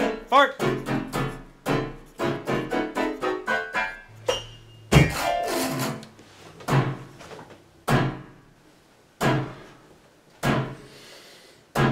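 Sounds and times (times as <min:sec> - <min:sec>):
jarring piano chords: 0:00.0 - 0:06.1, 0:06.7 - 0:07.2, 0:07.8 - 0:08.6, 0:09.2 - 0:09.7, 0:10.4 - 0:10.9.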